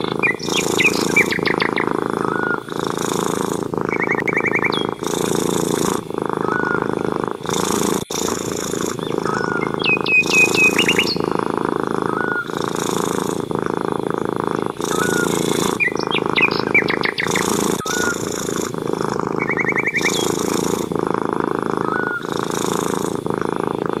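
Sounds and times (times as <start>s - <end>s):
cat purring: 0.0s - 24.0s
small birds chirping: 0.0s - 24.0s.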